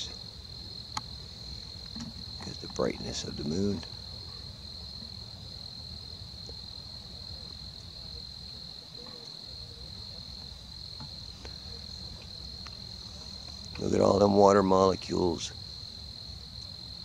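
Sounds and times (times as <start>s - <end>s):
crickets trilling: 0.0s - 17.0s.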